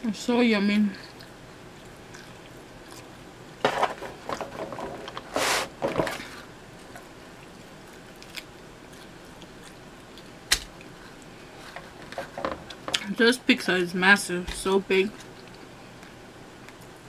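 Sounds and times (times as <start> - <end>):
chewing with wet mouth clicks: 1.0 - 3.3, 6.8 - 11.3, 15.1 - 17.0
pizza crunching: 7.5 - 11.3.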